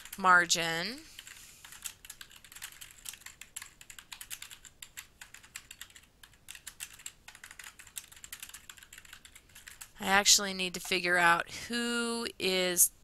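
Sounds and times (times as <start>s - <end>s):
typing on keyboard: 0.0s - 0.3s, 1.2s - 10.0s.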